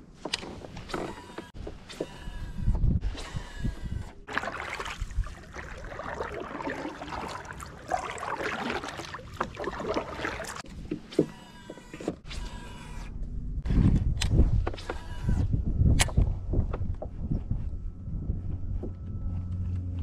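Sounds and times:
water lapping against kayak hull: 0:04.0 - 0:11.3.

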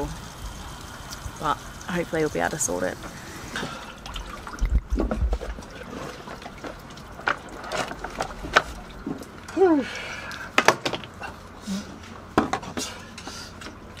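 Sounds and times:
water trickling and dripping: 0:00.0 - 0:10.6.

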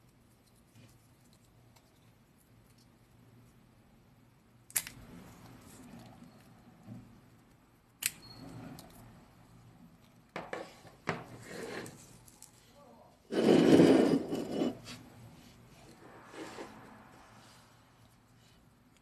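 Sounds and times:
rubbing scrape: 0:11.3 - 0:12.2, 0:13.3 - 0:17.7.

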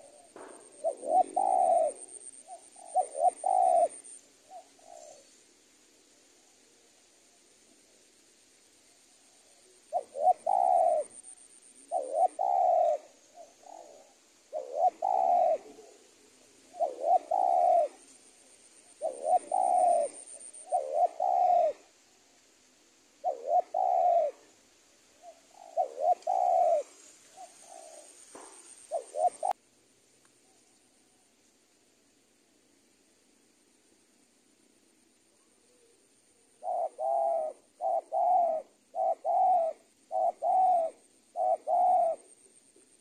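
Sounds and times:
dove cooing: 0:00.0 - 0:05.3, 0:09.4 - 0:22.0, 0:23.2 - 0:24.5, 0:25.1 - 0:29.6, 0:35.4 - 0:42.6.

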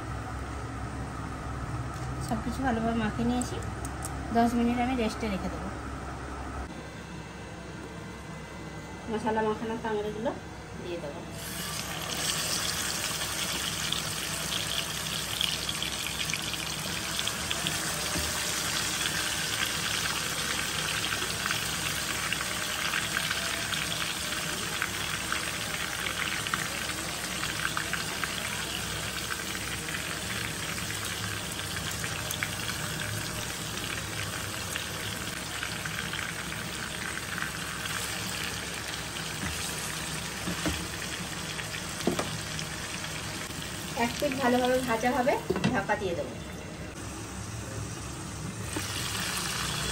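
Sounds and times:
chicken frying in hot oil: 0:11.4 - 0:46.0, 0:47.0 - 0:49.9.

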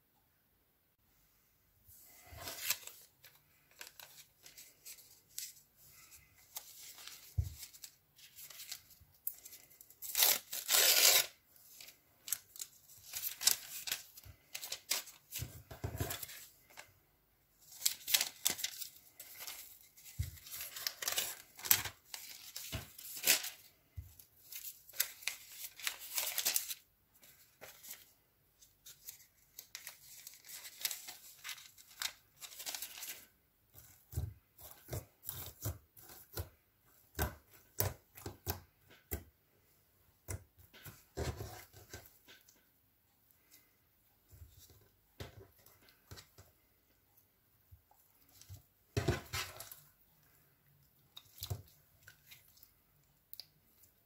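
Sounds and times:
metallic foil crinkling and tearing: 0:06.5 - 0:15.4, 0:17.6 - 0:23.8, 0:24.4 - 0:26.8, 0:28.8 - 0:33.3.

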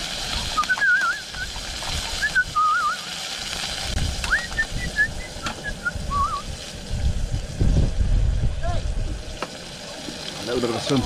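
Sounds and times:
steak sizzling in a frying pan: 0:00.0 - 0:11.0
warbling whistle: 0:00.5 - 0:01.6, 0:02.2 - 0:03.1, 0:04.2 - 0:06.5.

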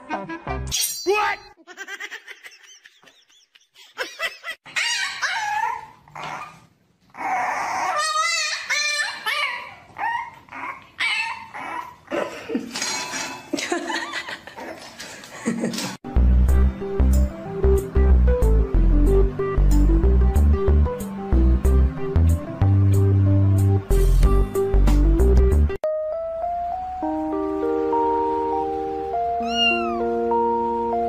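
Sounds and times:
dogs whining and yelping: 0:04.6 - 0:13.4, 0:29.4 - 0:30.1.

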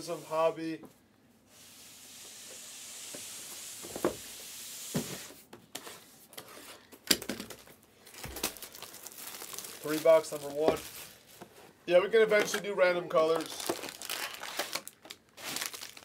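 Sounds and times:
plastic wrap crinkling: 0:07.1 - 0:11.5, 0:13.2 - 0:16.0
cutter slitting shrink wrap: 0:13.4 - 0:16.0.

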